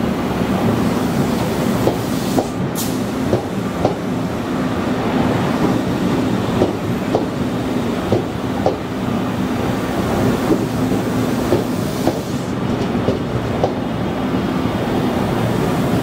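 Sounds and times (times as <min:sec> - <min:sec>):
train hum: 0:00.0 - 0:16.0
train wheels clacking: 0:06.6 - 0:07.4, 0:08.0 - 0:08.9, 0:10.5 - 0:13.8.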